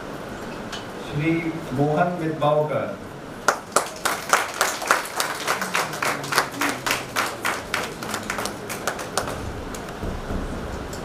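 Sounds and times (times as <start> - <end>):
audience clapping in rhythm: 3.4 - 10.2.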